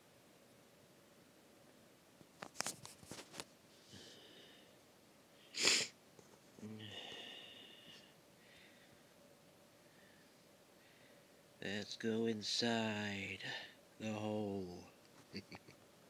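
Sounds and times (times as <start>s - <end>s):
quiet drawn-out sound: 0.0s - 16.0s
short sharp burst of breath: 5.4s - 6.0s.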